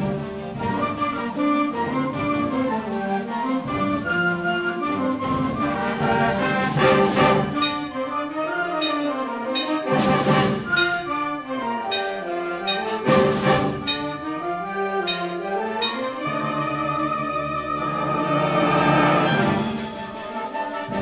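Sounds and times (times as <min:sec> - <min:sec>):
concert band playing: 0:00.0 - 0:21.0
loud percussion crashes: 0:05.2 - 0:08.2, 0:08.8 - 0:11.2, 0:11.9 - 0:14.4, 0:15.0 - 0:16.7.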